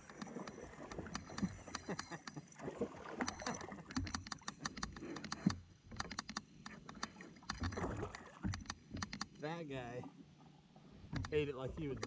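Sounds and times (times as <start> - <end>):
water splashing: 0.0 - 1.8, 2.6 - 4.0, 7.0 - 8.5.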